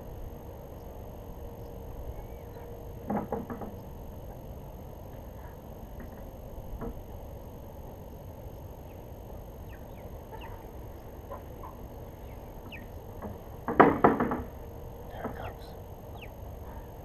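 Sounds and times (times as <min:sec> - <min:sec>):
birds chirping faintly: 0:00.6 - 0:03.0, 0:08.4 - 0:13.5, 0:15.0 - 0:17.0
rattling knocks: 0:13.2 - 0:14.5.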